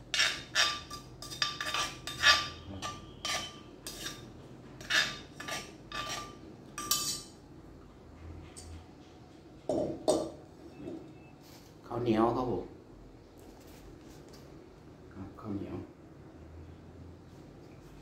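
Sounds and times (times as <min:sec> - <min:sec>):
scraping against clay mortar: 0:00.0 - 0:06.4.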